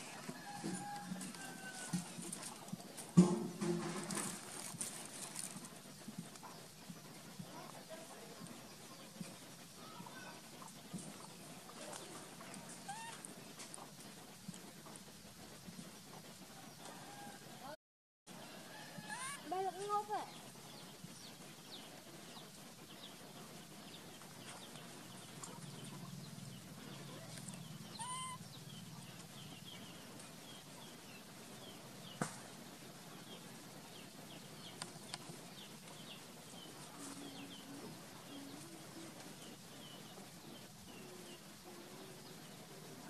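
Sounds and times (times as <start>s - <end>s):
bird chirps: 27.0s - 30.6s
brief pitched call: 28.0s - 28.4s.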